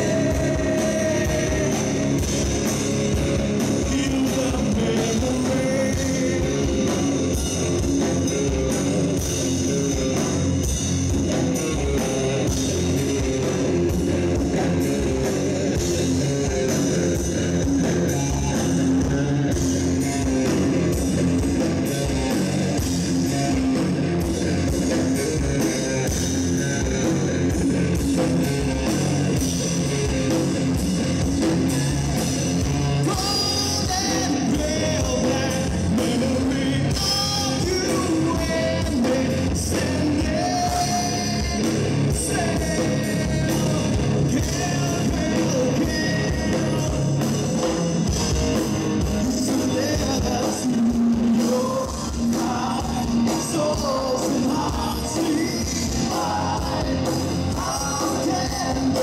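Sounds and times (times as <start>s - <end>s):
man singing into a microphone: 0.0s - 2.6s, 3.6s - 7.5s, 32.9s - 48.0s, 49.2s - 59.0s
bass guitar: 0.0s - 59.0s
drum kit: 0.0s - 59.0s
electric guitars: 0.0s - 59.0s.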